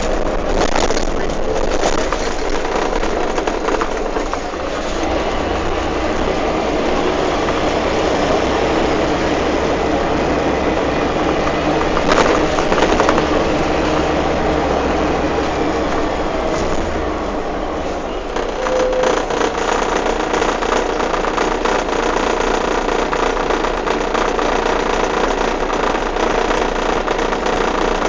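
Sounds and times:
rattling: 0.0 - 9.0
bus engine drone: 0.0 - 28.0
road noise: 0.0 - 28.0.

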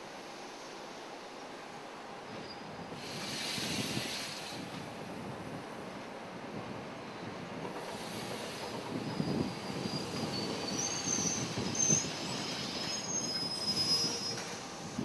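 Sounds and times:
low rumble of train on track: 0.0 - 15.0
train wheels squealing: 2.2 - 4.8, 7.0 - 15.0.

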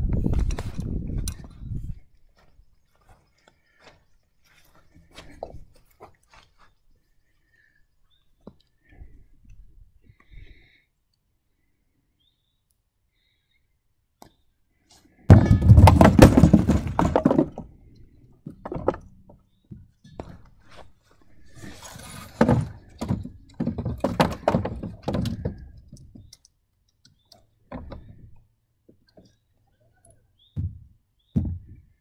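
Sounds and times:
bowling ball striking pins: 15.3 - 17.6.

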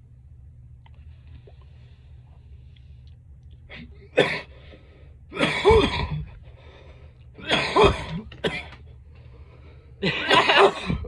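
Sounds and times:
person coughing: 4.1 - 4.5, 5.3 - 6.4, 7.4 - 8.8, 10.0 - 11.0.

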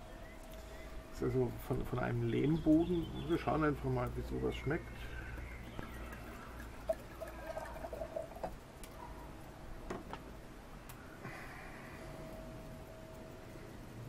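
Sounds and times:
wine pouring into a glass: 6.0 - 8.6.

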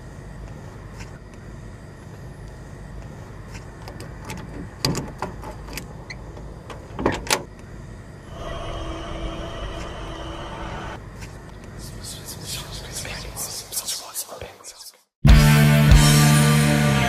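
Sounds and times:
steady humming tone: 7.5 - 13.8.

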